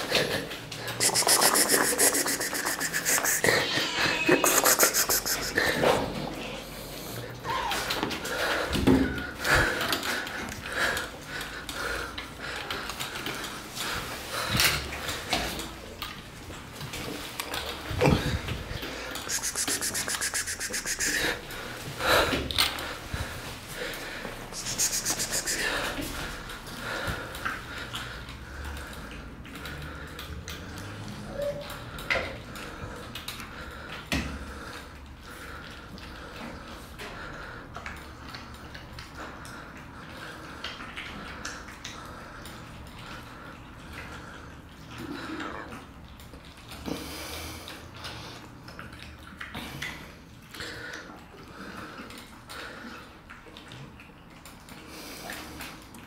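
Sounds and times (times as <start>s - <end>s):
cats chewing and licking: 0.0s - 56.0s.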